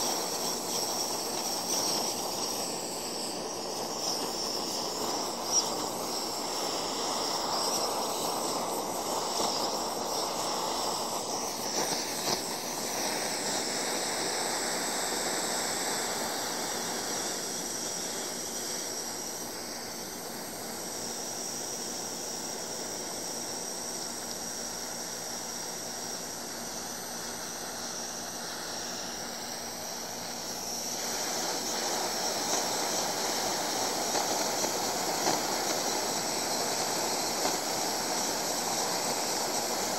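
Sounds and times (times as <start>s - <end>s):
blow torch hissing: 0.0s - 39.9s.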